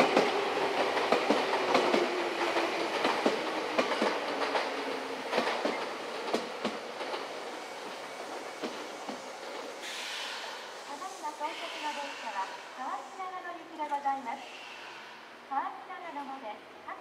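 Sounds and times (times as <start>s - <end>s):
train wheels clicking over rail joints: 0.0s - 10.4s.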